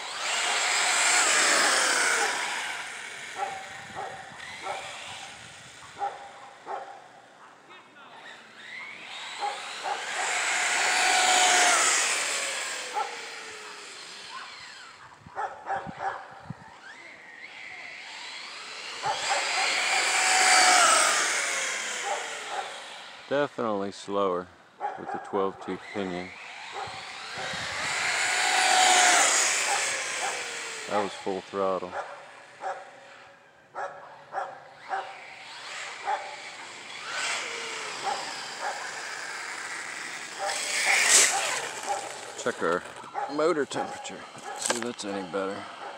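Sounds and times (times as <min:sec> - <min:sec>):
rc car motor whine: 0:00.0 - 0:33.6, 0:34.2 - 0:45.9
dog barking: 0:03.4 - 0:05.3, 0:05.9 - 0:07.6, 0:08.8 - 0:10.2, 0:13.0 - 0:13.2, 0:14.3 - 0:16.4, 0:19.0 - 0:19.8, 0:22.0 - 0:22.7, 0:24.8 - 0:25.4, 0:26.7 - 0:27.0, 0:31.9 - 0:32.9, 0:33.8 - 0:35.1, 0:36.0 - 0:36.4, 0:38.0 - 0:38.9, 0:40.4 - 0:42.0, 0:43.1 - 0:44.7.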